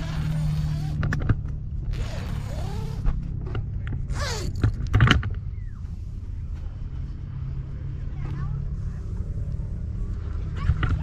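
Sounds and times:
zipper pulled open: 0:00.0 - 0:01.2, 0:01.8 - 0:03.2, 0:04.0 - 0:04.9.

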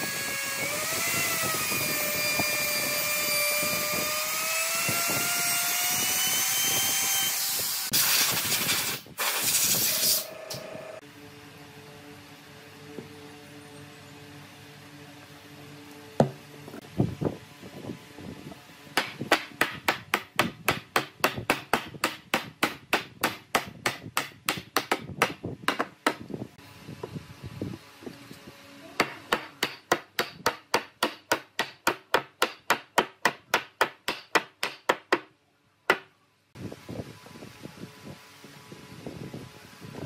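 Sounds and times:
hammer striking wood: 0:19.0 - 0:26.2, 0:29.0 - 0:35.3, 0:35.9 - 0:36.1.

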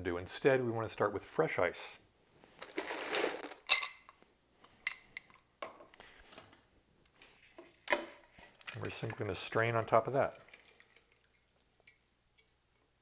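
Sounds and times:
ice cubes rattling: 0:02.6 - 0:04.0
ice cubes clinking against glass: 0:02.6 - 0:04.1.

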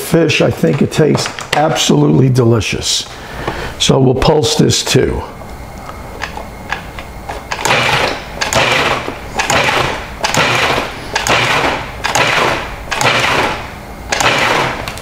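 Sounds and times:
food processor pulsing whirr: 0:07.5 - 0:15.0.

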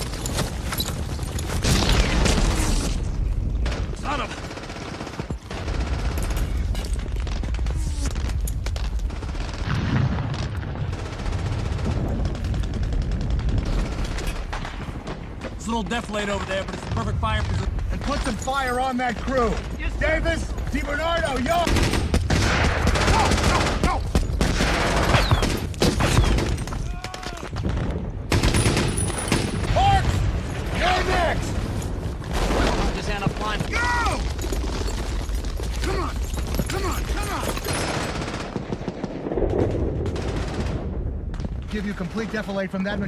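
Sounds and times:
rifle and machine-gun shots: 0:00.0 - 0:07.6, 0:08.2 - 0:19.8, 0:20.7 - 0:43.0
rumble of distant explosions: 0:06.6 - 0:35.8, 0:37.8 - 0:43.0
machine-gun fire: 0:09.1 - 0:15.2, 0:21.6 - 0:26.8, 0:27.6 - 0:30.2, 0:37.1 - 0:41.0
heavy explosion boom: 0:09.6 - 0:13.8, 0:38.9 - 0:41.7
rifle fire: 0:21.6 - 0:35.2, 0:37.6 - 0:41.4
people shouting: 0:33.7 - 0:34.2.

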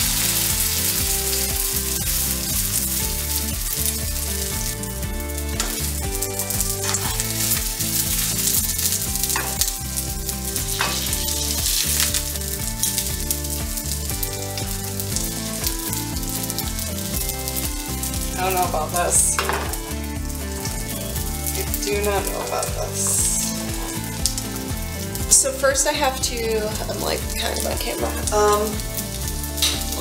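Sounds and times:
dough sizzling in oil: 0:00.0 - 0:30.0
spatula scraping pan: 0:05.6 - 0:13.0.

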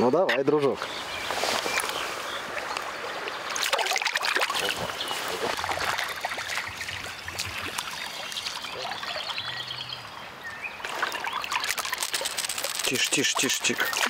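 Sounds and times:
river water trickling: 0:00.6 - 0:14.0
fish thrashing at water surface: 0:03.6 - 0:06.8, 0:10.9 - 0:14.0.

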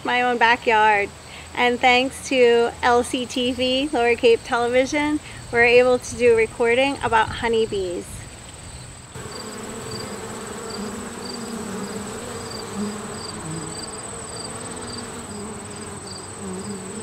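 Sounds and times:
honeybees buzzing: 0:09.2 - 0:17.0.

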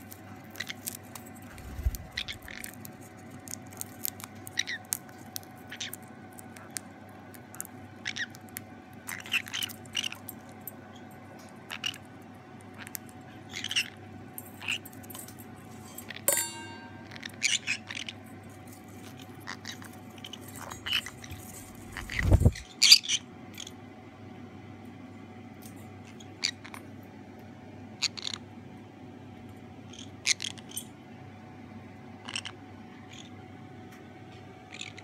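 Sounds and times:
birds crunching popcorn: 0:00.0 - 0:16.3, 0:17.0 - 0:22.7
beaks and claws clicking on bowl: 0:00.0 - 0:22.7, 0:29.9 - 0:31.0
ringing clink: 0:16.3 - 0:17.3.

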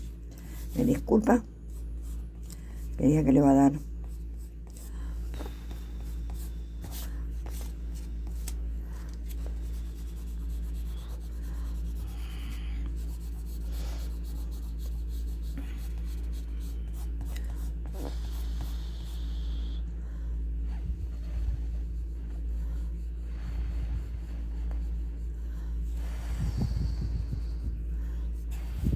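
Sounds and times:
pencil scratching on paper: 0:00.0 - 0:04.9, 0:05.7 - 0:19.4
steady low hum: 0:00.0 - 0:28.9.

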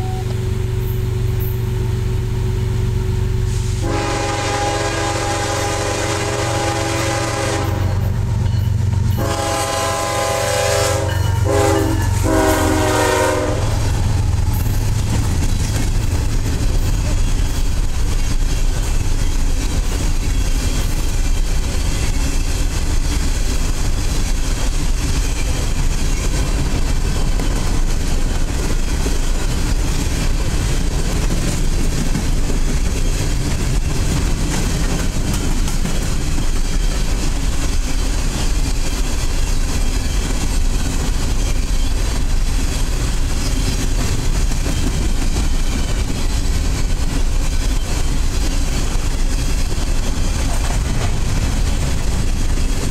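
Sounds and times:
train wheels rumbling on rails: 0:00.0 - 0:52.9.

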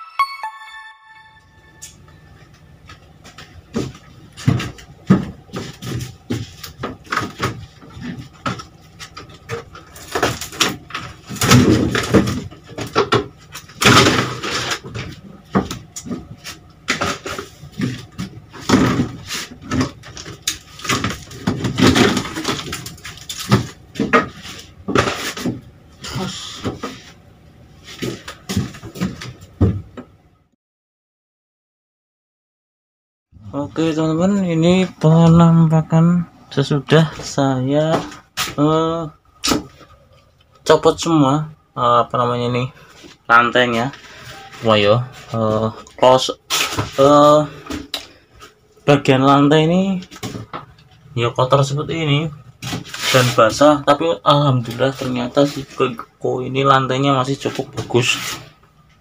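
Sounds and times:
scraping and rustling: 0:52.6 - 0:53.6, 0:57.3 - 0:58.7.

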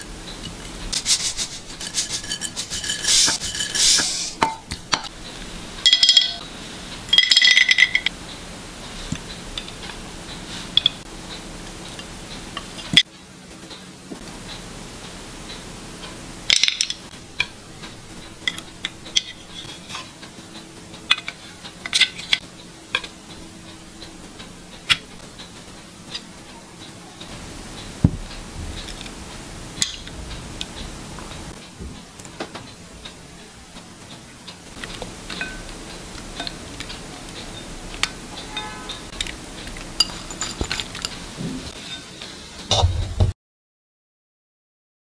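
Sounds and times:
chopsticks clinking on ceramic plate: 0:01.6 - 0:05.1, 0:05.8 - 0:06.4, 0:40.0 - 0:41.2.

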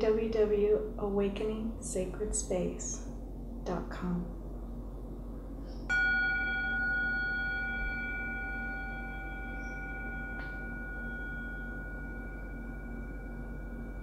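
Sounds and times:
wooden striker hitting bowl: 0:05.9 - 0:12.5
singing bowl ringing: 0:05.9 - 0:14.0.

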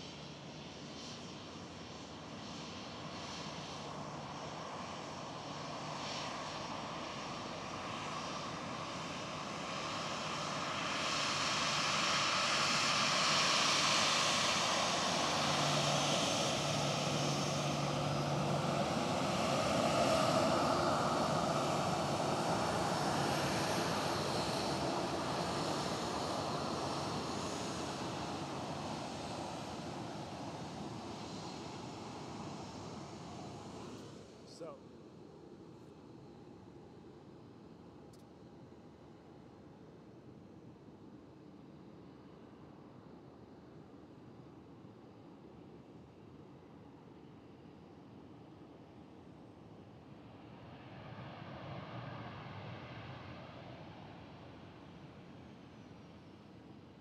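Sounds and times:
jet engines: 0:00.0 - 0:57.0.

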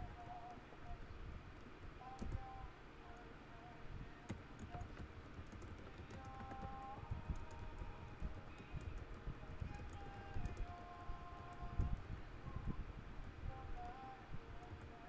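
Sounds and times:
keyboard key clicks: 0:04.3 - 0:12.0.

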